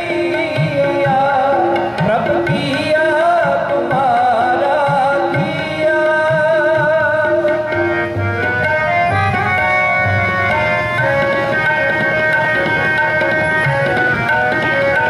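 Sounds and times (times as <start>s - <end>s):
man singing: 0.0s - 8.0s
harmoniums playing: 0.0s - 15.0s
tabla drumming: 0.0s - 15.0s.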